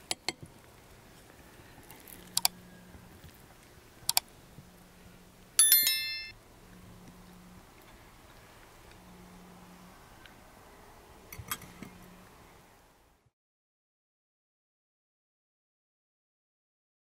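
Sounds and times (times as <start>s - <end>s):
bright bell chime: 5.6s - 6.4s.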